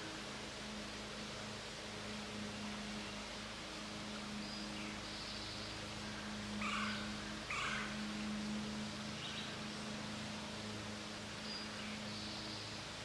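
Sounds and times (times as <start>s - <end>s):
low hum and hiss: 0.0s - 13.0s
animal calls: 6.6s - 7.9s.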